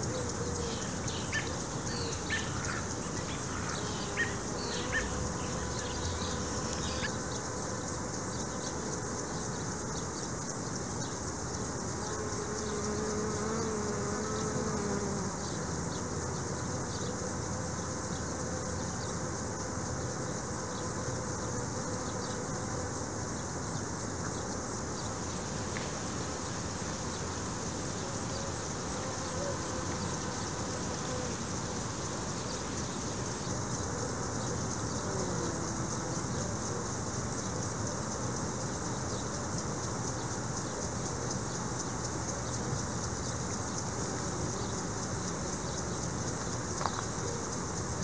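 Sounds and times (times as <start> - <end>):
bees buzzing: 0.3 - 9.1.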